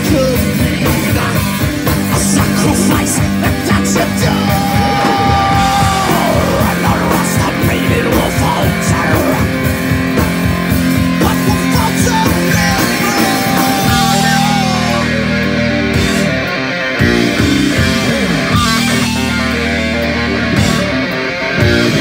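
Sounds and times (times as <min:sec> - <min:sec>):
fast drumming: 0:00.0 - 0:15.4
distorted electric guitars: 0:00.0 - 0:22.0.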